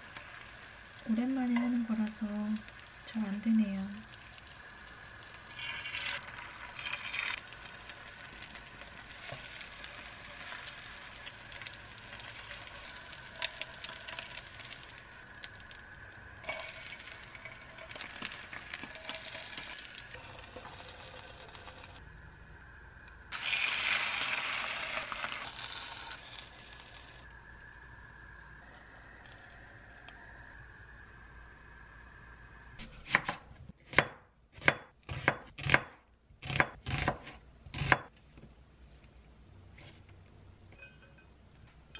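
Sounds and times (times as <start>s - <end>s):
egg sizzling in frying pan: 0.0s - 22.0s, 23.3s - 27.7s.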